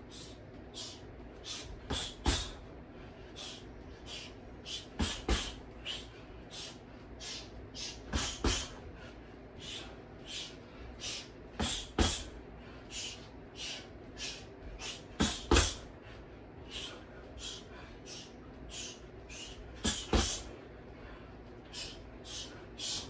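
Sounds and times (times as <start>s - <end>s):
heavy thuds: 1.4s - 2.7s, 5.0s - 6.0s, 8.0s - 9.0s, 11.6s - 12.3s, 14.6s - 15.9s, 19.7s - 20.5s
sharp hissing exhales: 3.4s - 8.8s.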